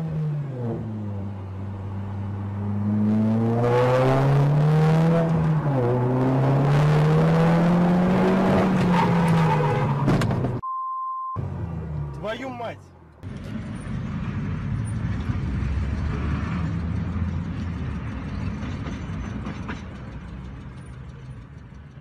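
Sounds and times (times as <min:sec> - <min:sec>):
car engine accelerating: 0:00.0 - 0:10.6
road noise: 0:00.0 - 0:10.6, 0:11.4 - 0:22.0.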